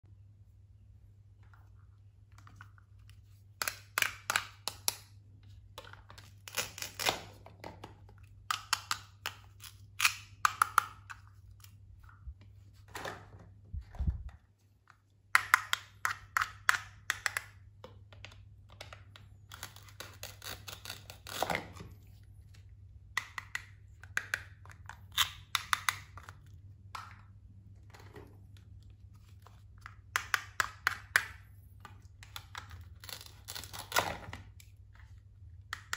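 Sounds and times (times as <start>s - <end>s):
toy knife cutting plastic food: 19.5s - 21.7s.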